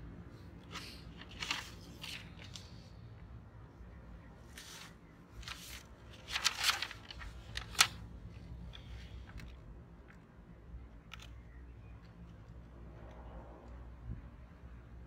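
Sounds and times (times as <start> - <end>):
paper and cardboard rustling: 0.6 - 2.9, 4.5 - 9.5.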